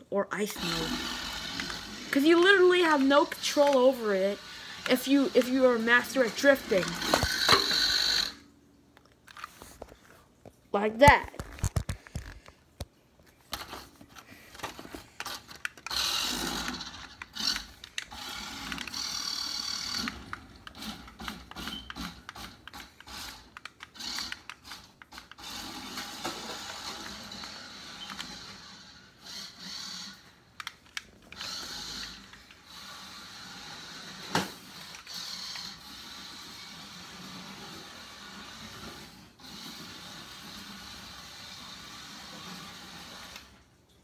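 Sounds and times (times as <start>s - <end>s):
small electric motor whirring: 0.6s - 8.4s, 15.2s - 30.3s, 31.3s - 43.5s.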